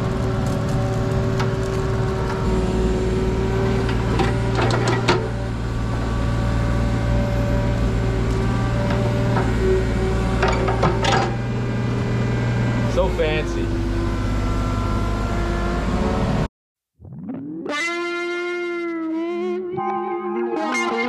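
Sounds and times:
excavator engine humming: 0:00.0 - 0:16.5.

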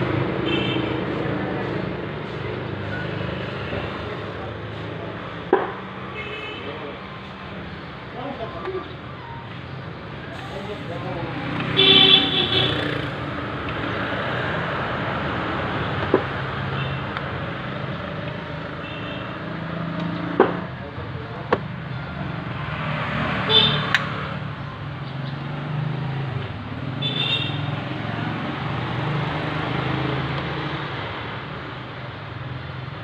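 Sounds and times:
road traffic: 0:00.0 - 0:33.0
faint voices: 0:01.1 - 0:11.8.

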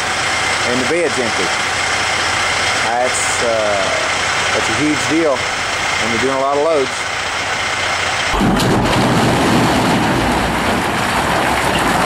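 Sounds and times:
rock crashing into trailer bed: 0:08.3 - 0:12.0
rush of falling rock: 0:08.3 - 0:12.0.

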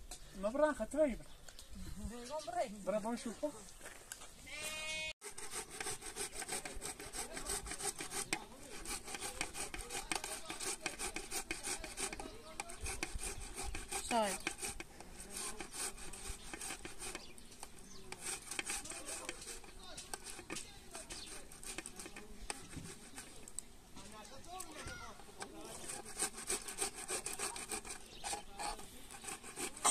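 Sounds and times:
scraping rasping strokes: 0:05.2 - 0:23.6, 0:25.0 - 0:29.9.

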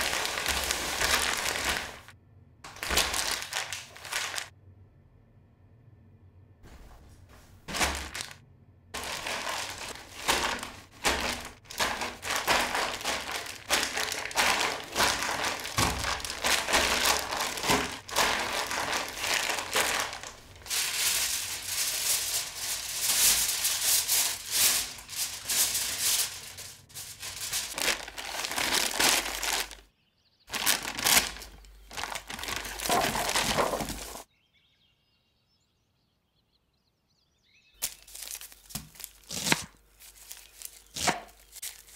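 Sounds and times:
aluminium foil crinkling: 0:00.0 - 0:02.1, 0:02.7 - 0:04.5, 0:07.6 - 0:08.4, 0:09.0 - 0:29.8, 0:30.5 - 0:34.3, 0:37.8 - 0:41.9.

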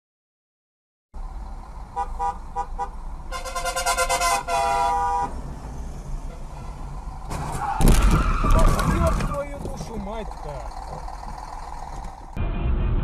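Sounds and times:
low rumble of engines and road: 0:01.2 - 0:13.0
car horn honking: 0:02.0 - 0:05.4, 0:06.2 - 0:07.0.

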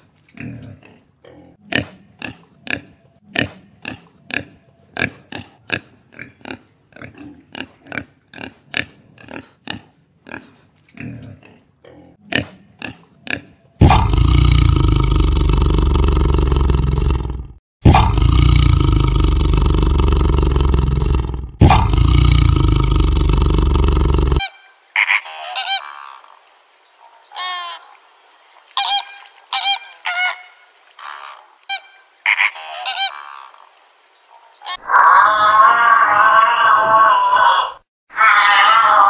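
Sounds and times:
tiger roaring: 0:13.8 - 0:24.4
flamingos honking: 0:28.8 - 0:33.5
wavering animal call: 0:28.8 - 0:33.6, 0:34.6 - 0:39.0.

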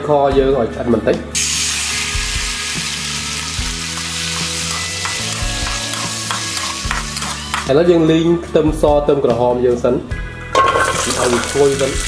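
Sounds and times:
fish sizzling in a wok: 0:01.4 - 0:07.7, 0:10.6 - 0:12.0
spatula scraping: 0:04.0 - 0:07.7.

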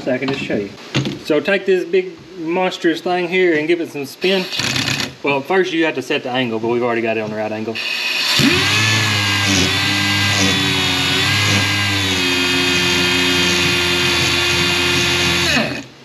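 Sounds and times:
grinder whine: 0:04.2 - 0:05.2, 0:07.8 - 0:16.0.

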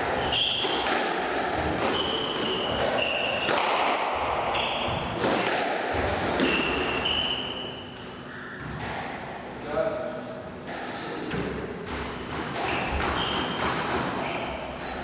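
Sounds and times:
squash ball smacking: 0:00.0 - 0:07.3, 0:10.7 - 0:15.0
shoes squeaking on wooden floor: 0:12.7 - 0:15.0.

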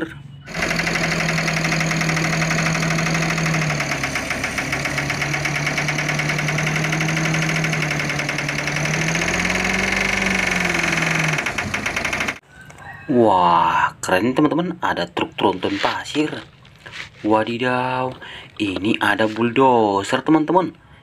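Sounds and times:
diesel engine clattering: 0:00.5 - 0:12.4.

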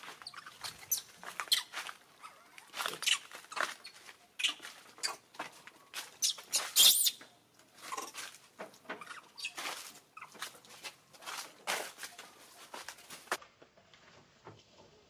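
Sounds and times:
monkeys squeaking and squealing: 0:00.0 - 0:05.3, 0:06.0 - 0:08.2, 0:08.9 - 0:10.4.

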